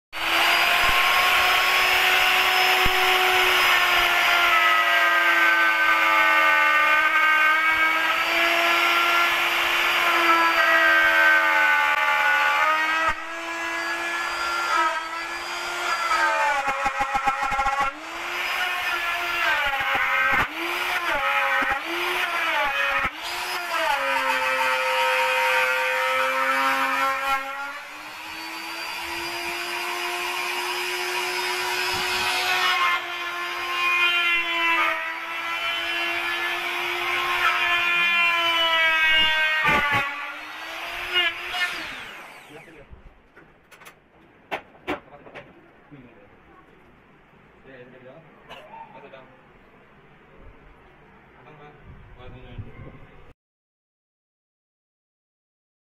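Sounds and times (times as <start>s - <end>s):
electric router cutting wood: 0.2s - 42.9s.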